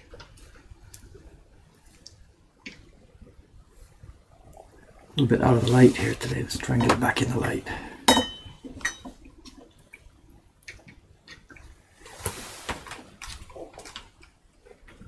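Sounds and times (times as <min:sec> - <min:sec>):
sliding scrape: 0:12.0 - 0:13.2.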